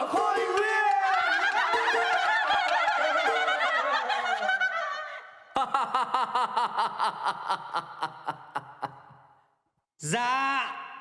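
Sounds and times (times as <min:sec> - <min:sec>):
man laughing heartily: 0:01.2 - 0:09.4.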